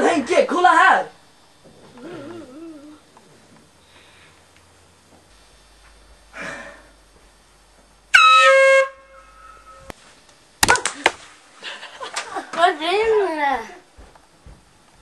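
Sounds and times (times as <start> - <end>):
air horn blast: 8.1 - 9.9.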